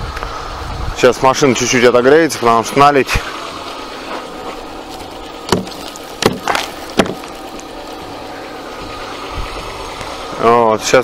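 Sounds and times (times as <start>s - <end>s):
car engine idling: 1.2s - 11.0s
sharp knocks on glass: 5.5s - 7.3s.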